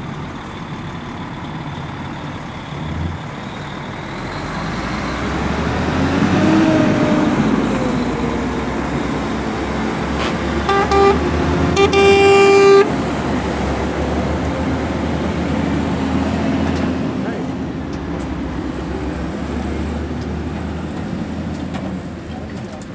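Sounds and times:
trucks driving past: 0.0 - 22.9
truck horn blasts: 10.2 - 13.2.

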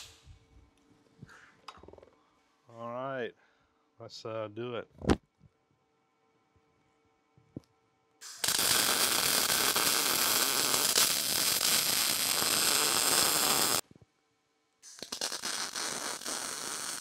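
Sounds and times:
welding arc buzzing: 8.2 - 13.8, 14.8 - 17.0.

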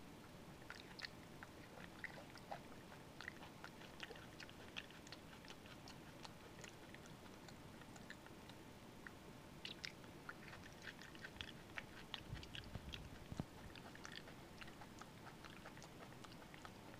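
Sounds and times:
monkey chewing and lip smacking: 0.6 - 16.9.

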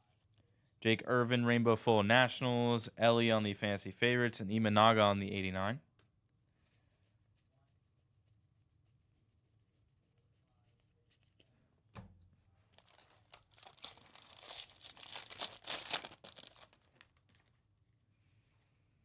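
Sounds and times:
foil wrapper crinkling and tearing: 12.7 - 17.6.

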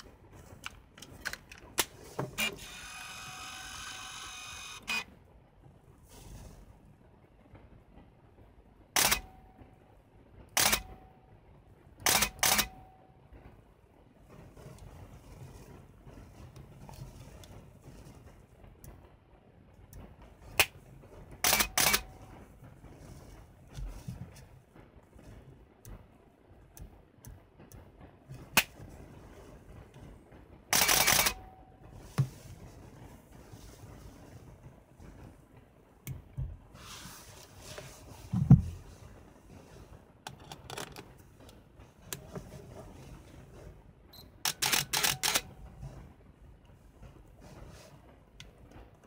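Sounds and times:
camera shutter clack: 9.0 - 9.3, 10.6 - 11.0, 12.0 - 12.8, 21.4 - 22.1, 30.7 - 31.5, 44.4 - 45.5.

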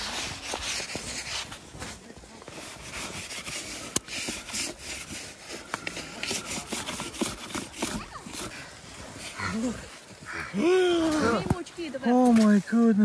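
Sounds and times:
crunching through deep snow: 0.0 - 10.1.

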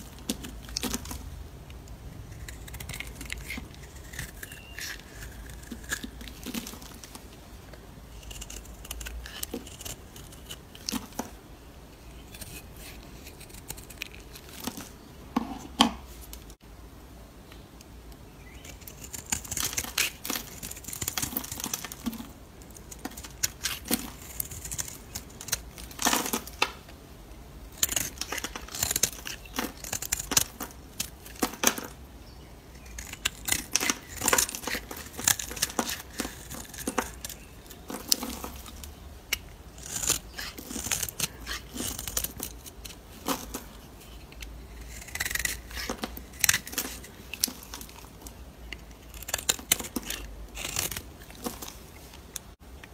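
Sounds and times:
knife blade scraping soap: 2.3 - 7.0, 8.2 - 11.2, 12.1 - 14.5, 22.8 - 26.6, 27.8 - 31.9, 32.7 - 51.8.

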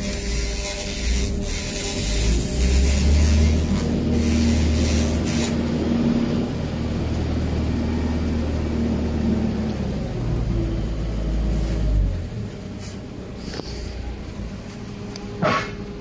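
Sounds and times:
laser cleaner hissing: 0.0 - 5.8
low machine hum: 0.0 - 16.0.

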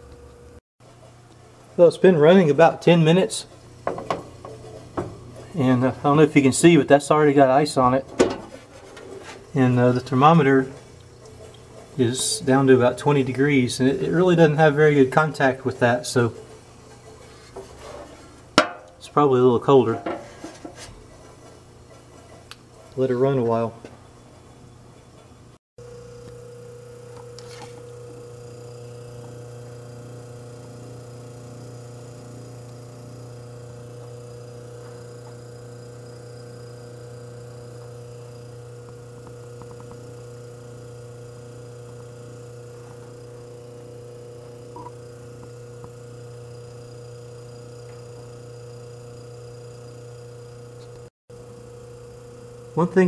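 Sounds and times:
refrigerator compressor humming: 0.0 - 20.4, 25.4 - 53.0.

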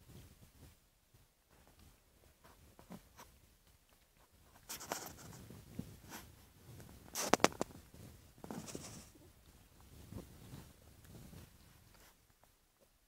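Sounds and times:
scratchy rustling and scraping: 4.0 - 12.6.

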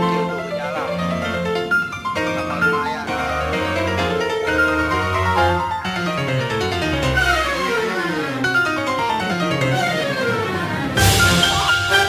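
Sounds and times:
lively background music: 9.3 - 12.0.

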